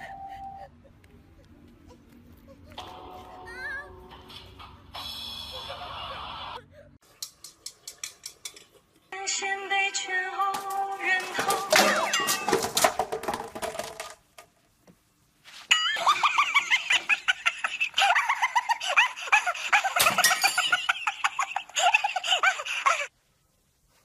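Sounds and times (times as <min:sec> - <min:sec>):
steel basins clinking: 0:10.6 - 0:14.1.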